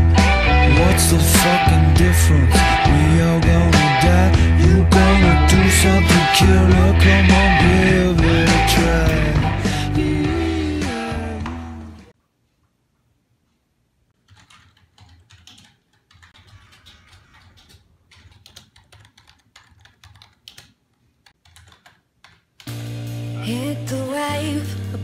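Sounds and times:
loud music: 0.0 - 12.1
typing on computer keyboard: 14.2 - 22.7.

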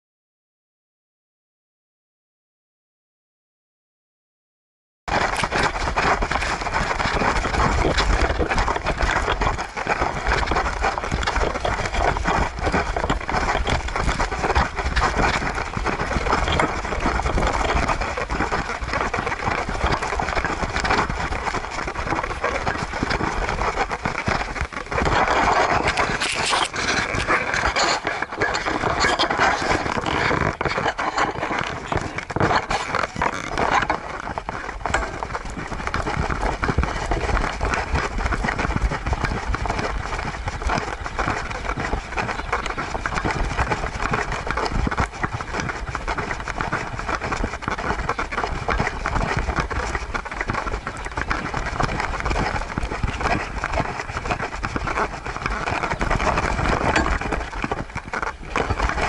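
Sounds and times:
wind rumbling on microphone: 5.1 - 59.0
fur rustling against microphone: 23.8 - 30.6.

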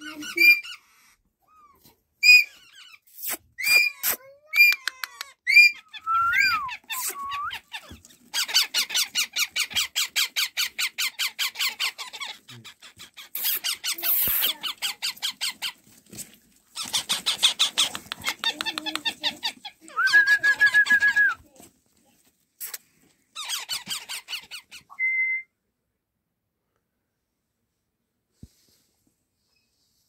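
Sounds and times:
parakeet chicks calling: 5.5 - 15.8, 16.8 - 19.8.

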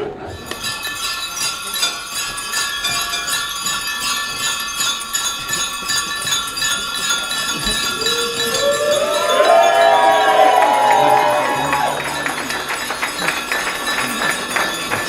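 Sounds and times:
chimes ringing: 0.1 - 15.0.

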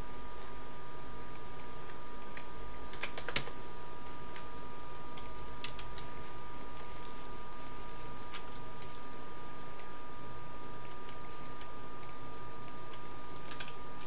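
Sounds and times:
electrical whine and hiss: 0.0 - 14.0
computer mouse and keyboard clicks: 1.3 - 3.6, 4.4 - 9.1, 10.6 - 14.0.

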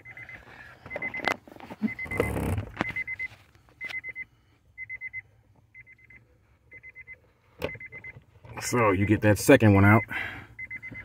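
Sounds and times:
car warning chime beeps: 0.0 - 11.0.

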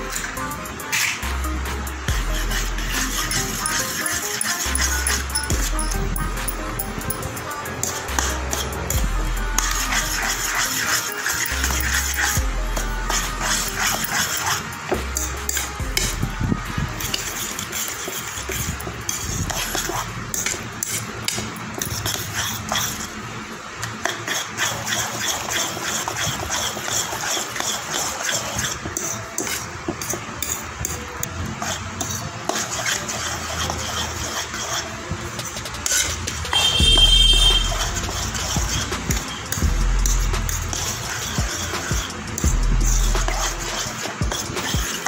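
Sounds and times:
spoon scraping bowl: 0.0 - 1.3, 2.1 - 23.1, 23.8 - 45.0.

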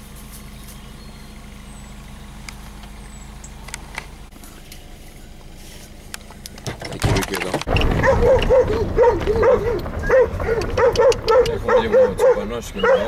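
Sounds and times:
low rumble: 7.6 - 13.0
dogs barking: 7.7 - 13.0.

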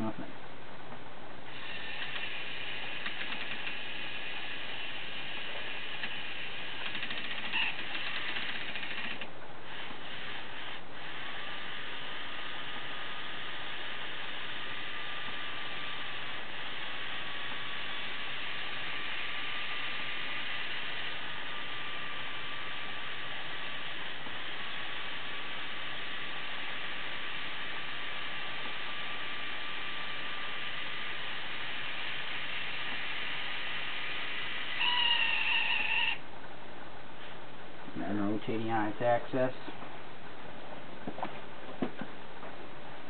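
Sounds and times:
toy electric motor whining: 1.5 - 12.2, 34.0 - 36.2
gear clicks: 6.8 - 9.3.

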